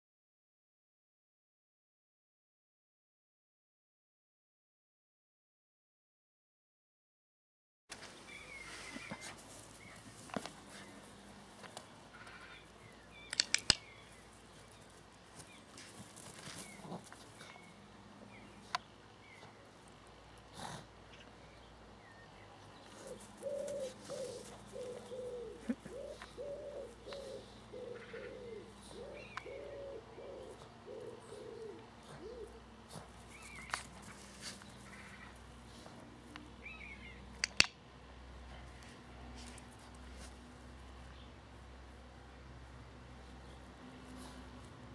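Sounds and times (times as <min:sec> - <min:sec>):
sharp clicks: 0:13.2 - 0:14.1, 0:37.4 - 0:37.8
low repeated calls: 0:23.0 - 0:32.6.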